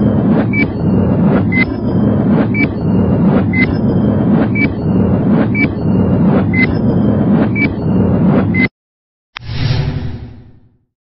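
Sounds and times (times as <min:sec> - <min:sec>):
steady low drone: 0:00.0 - 0:08.7.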